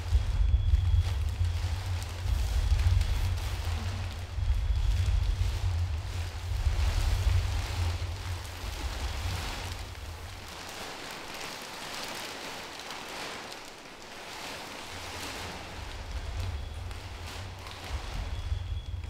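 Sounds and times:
low rumble: 0.0 - 11.5, 15.0 - 19.0
plastic sheeting crinkling: 0.0 - 19.0.

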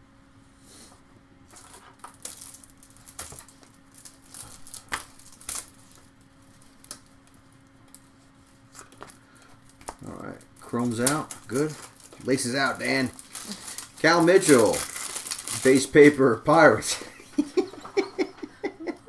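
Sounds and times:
faint steady hum: 0.0 - 19.0
cards clicking and rustling: 1.5 - 16.2.

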